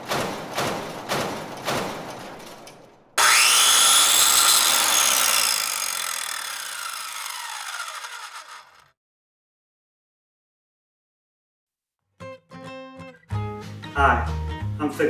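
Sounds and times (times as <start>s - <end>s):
power tool motor whine: 3.2s - 9.0s.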